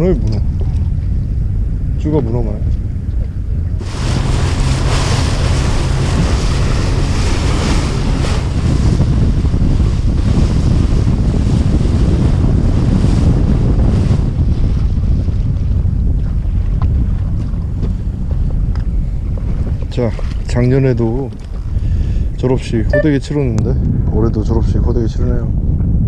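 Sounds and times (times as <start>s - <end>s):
water rushing along boat hull: 0.0s - 23.0s
wind buffeting microphone: 0.0s - 26.0s
boat engine drone: 2.9s - 13.7s.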